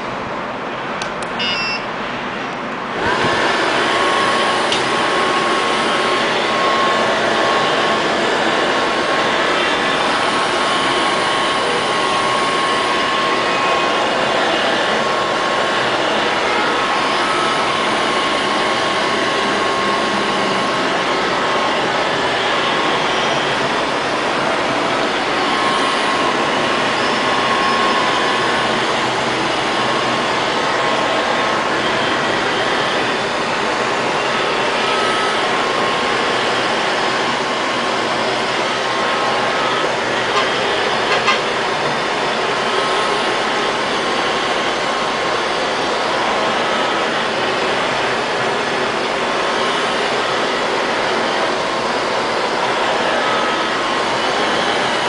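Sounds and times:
short beeps: 0:01.4 - 0:02.0.

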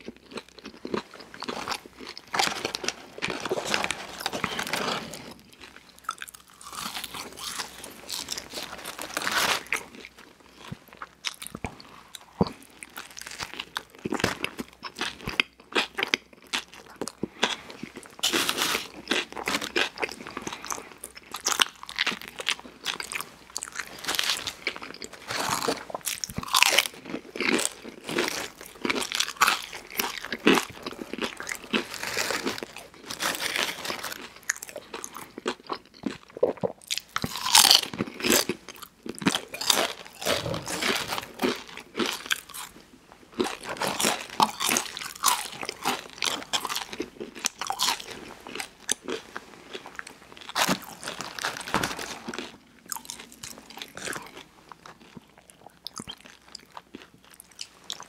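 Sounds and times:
crunching and chewing crisp food: 0:00.0 - 0:58.0.

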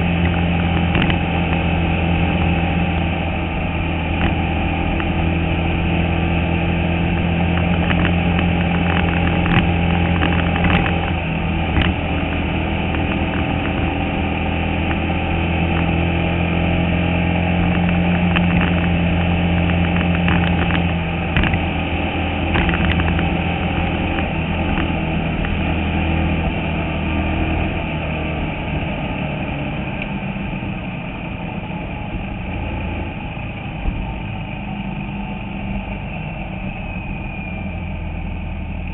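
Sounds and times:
race car engine running: 0:00.0 - 0:38.9
car knocks and rattles: 0:00.7 - 0:01.2, 0:07.6 - 0:13.9, 0:19.6 - 0:21.7, 0:22.5 - 0:23.4.

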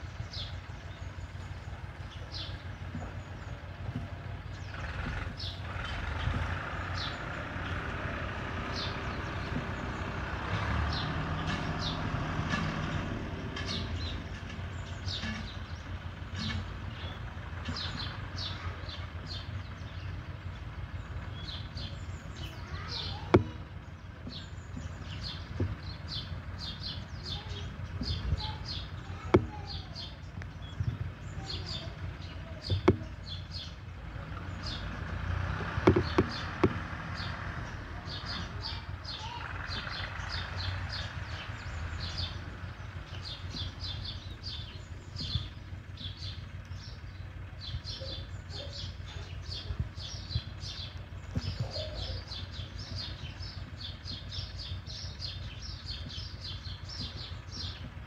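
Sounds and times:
songbirds chirping: 0:00.0 - 0:58.0
sharp clicks: 0:35.6 - 0:37.0.

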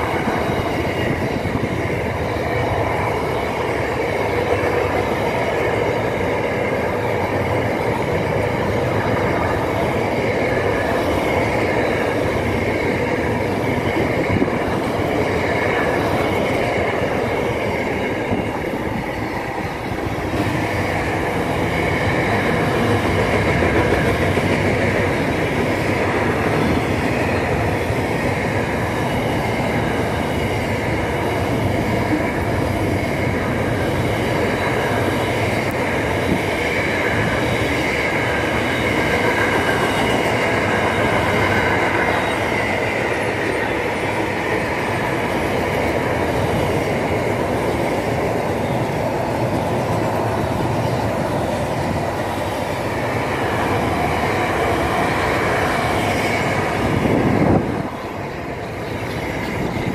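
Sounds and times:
freight train wheels rumbling: 0:00.0 - 0:59.9
high wheel squeal: 0:36.8 - 0:44.7.

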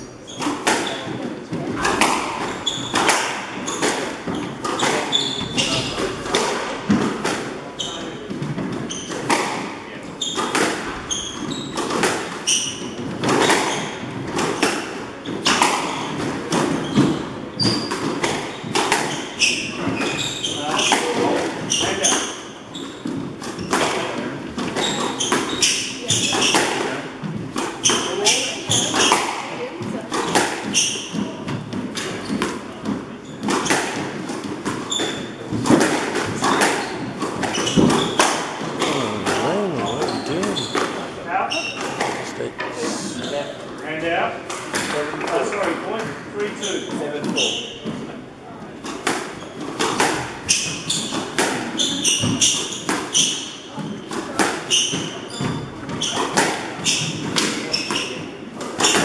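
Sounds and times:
shoes squeaking on wooden floor: 0:00.0 - 0:43.8, 0:45.4 - 0:59.0
squash ball cracking off walls: 0:23.0 - 0:39.5.

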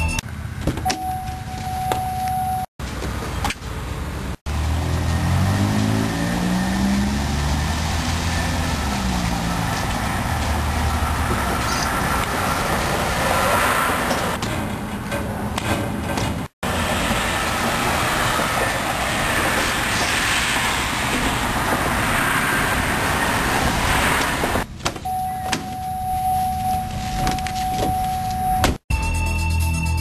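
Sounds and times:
steady electronic beep: 0:00.0 - 0:00.2, 0:25.1 - 0:30.0
traffic noise: 0:00.0 - 0:28.8.

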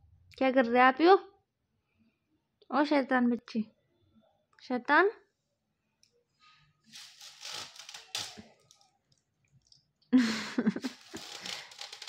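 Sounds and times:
foil curtain rustling and crinkling: 0:06.9 - 0:08.8, 0:10.8 - 0:12.0.

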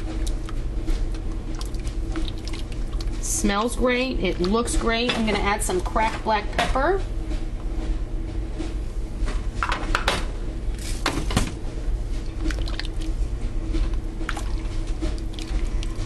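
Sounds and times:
thick soup squishing: 0:00.0 - 0:03.2, 0:12.2 - 0:13.3, 0:13.9 - 0:16.0.

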